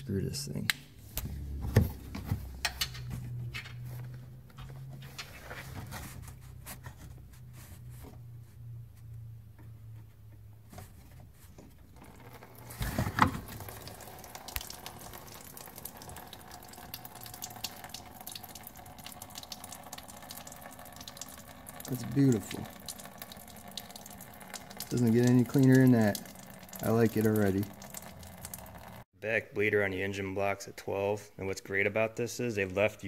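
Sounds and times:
coolant running into a pan: 11.9 - 29.0.

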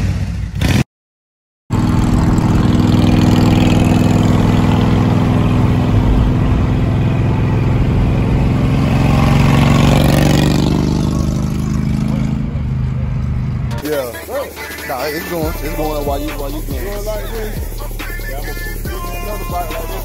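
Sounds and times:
motorcycle engine running: 1.7 - 20.0
road noise: 1.7 - 20.0.

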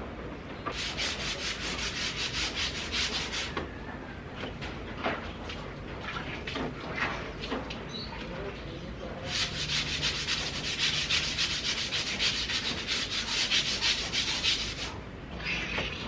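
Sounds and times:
brush scrubbing metal gate: 0.7 - 3.6, 9.1 - 15.0.

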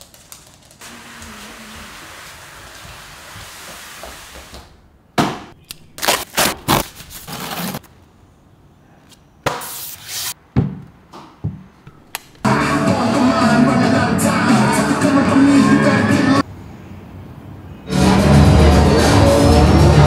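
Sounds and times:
plastic wrap rustling: 5.8 - 7.9
cardboard scraping and rustling: 6.0 - 7.9
music: 12.4 - 16.4, 17.9 - 20.0.

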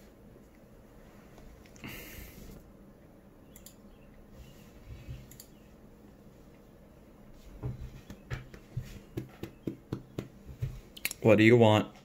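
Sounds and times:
sharp clicks: 3.5 - 3.8
soft knocks and handling noises: 7.4 - 10.8.

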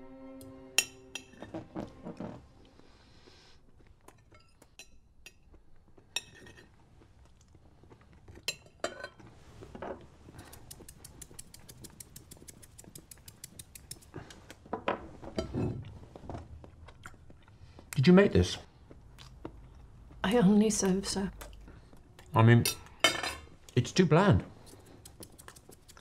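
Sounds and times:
chewing sounds: 2.6 - 14.7, 15.8 - 22.5, 24.5 - 26.0
knife and fork scraping on plate: 6.2 - 6.7
fast light ticks: 10.4 - 14.1.

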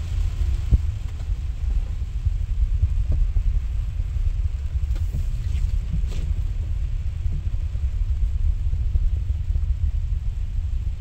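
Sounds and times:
rain and road rumble: 0.0 - 11.0.

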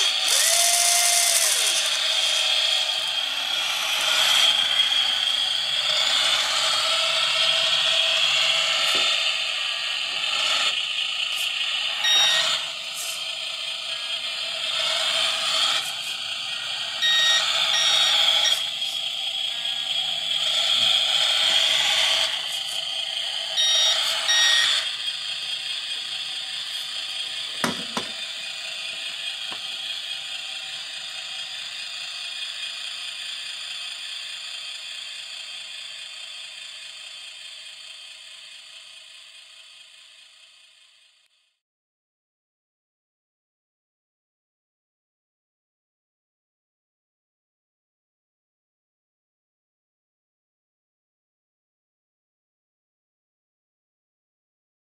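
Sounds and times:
small electric motors whining: 0.0 - 41.6
short electronic beeps: 12.0 - 12.6, 17.0 - 18.6, 23.6 - 24.8.

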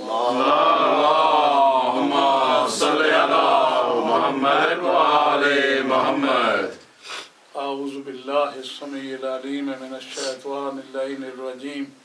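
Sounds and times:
man chanting religious recitation: 7.6 - 12.0.

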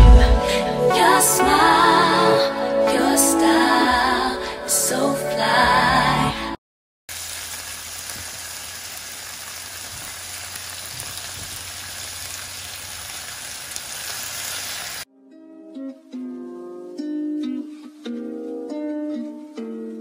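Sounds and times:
chicken sizzling in oil: 7.1 - 15.1
soft plucked-string music: 15.1 - 20.0.

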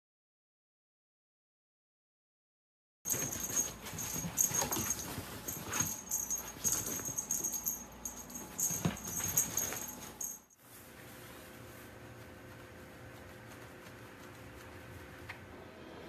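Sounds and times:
clothes rustling: 3.1 - 14.8.

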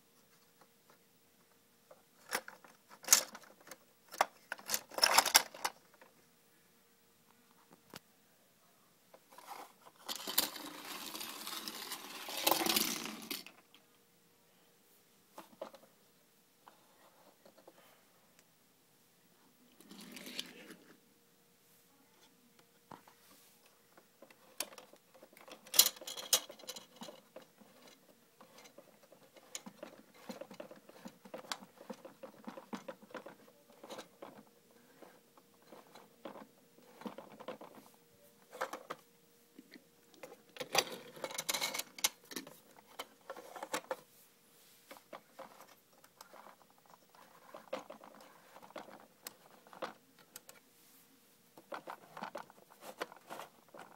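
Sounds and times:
toy cars clicking and rattling: 2.2 - 5.8, 9.4 - 13.7, 24.2 - 37.8, 40.2 - 44.0.

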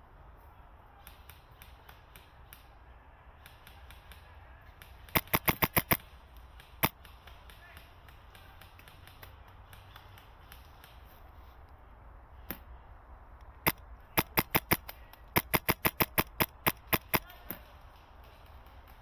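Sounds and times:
airsoft rifle shots: 3.4 - 9.3, 13.6 - 17.7.

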